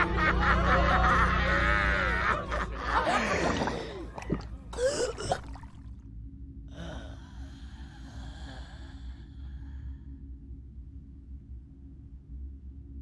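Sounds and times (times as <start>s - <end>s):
low steady hum: 0.0s - 13.0s
woman gasping and groaning: 3.1s - 5.6s, 6.7s - 9.7s.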